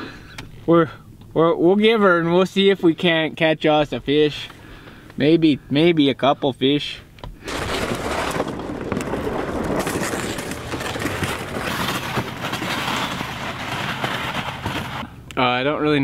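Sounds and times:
plastic sled scraping over ice: 7.5s - 15.1s.

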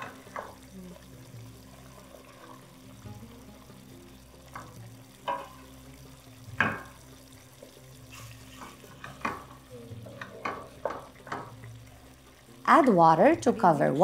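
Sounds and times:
faint sizzle of cooking: 0.0s - 14.0s
wooden spoon knocking against pot: 6.5s - 7.0s, 10.2s - 11.6s.

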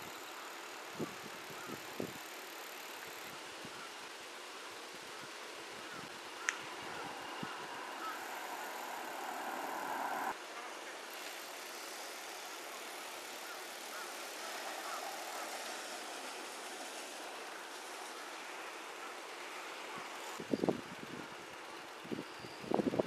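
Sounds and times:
passing cars road noise: 5.5s - 10.4s.

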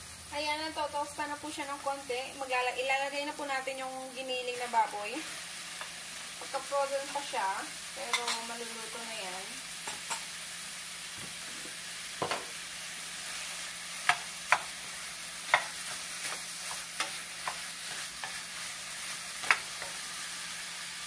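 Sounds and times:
meat frying in oil: 0.0s - 21.0s
wooden spoon knocking on pan: 12.2s - 12.6s, 14.1s - 14.7s, 15.5s - 17.6s, 19.4s - 20.0s.

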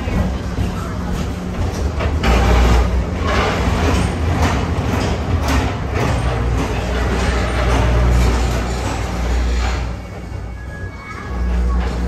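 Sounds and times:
ride car rumbling along track: 0.0s - 12.0s.

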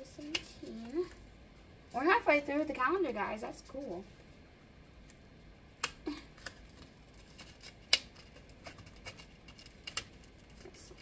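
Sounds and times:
packaging crinkling: 6.3s - 11.0s.

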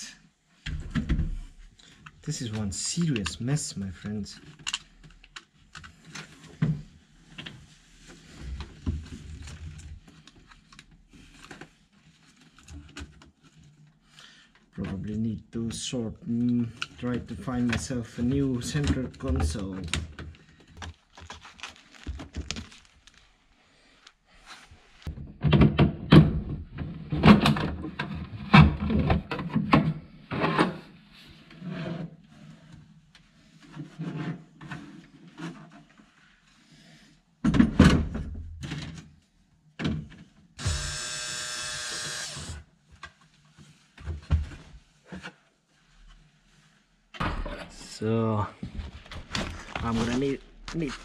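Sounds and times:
power tool whirring: 40.6s - 42.6s.

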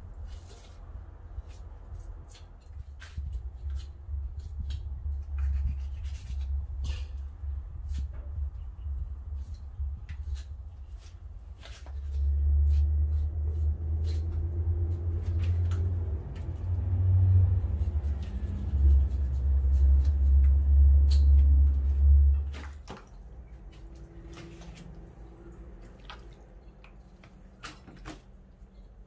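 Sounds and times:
loud uneven low rumble: 4.0s - 27.6s.

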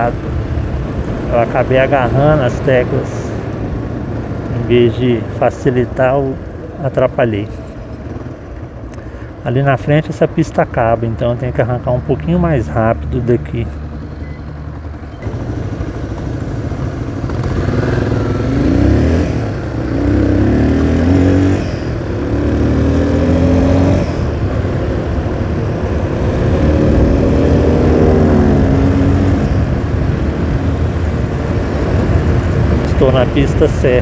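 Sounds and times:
wind and road noise: 0.0s - 34.0s
motorcycle engine accelerating: 13.0s - 34.0s.

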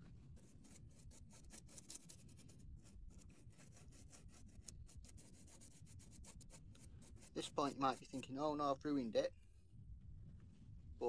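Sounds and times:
paintbrush scrubbing scratchy strokes: 0.0s - 8.7s.

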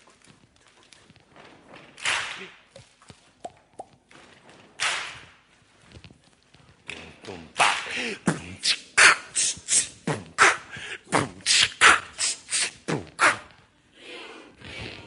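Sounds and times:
beatboxing: 6.8s - 13.7s.

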